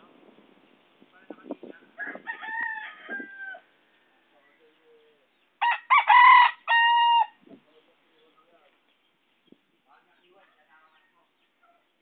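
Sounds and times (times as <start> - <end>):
rooster crowing: 2.0 - 3.7, 5.6 - 7.4.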